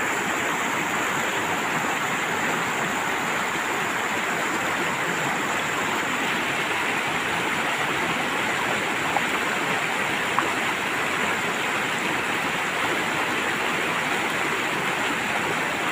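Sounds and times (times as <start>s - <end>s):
stream rushing over rocks: 0.0s - 15.9s.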